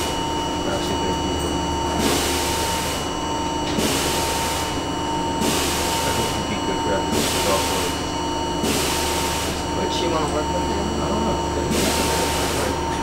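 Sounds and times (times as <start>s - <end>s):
constant whine: 0.0s - 13.0s
rhythmic hiss: 5.4s - 12.9s.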